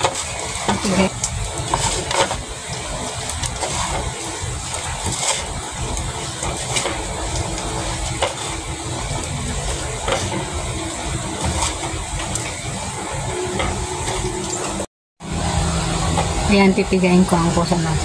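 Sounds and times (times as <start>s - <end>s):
wet squelches of kneading: 0.0s - 14.9s.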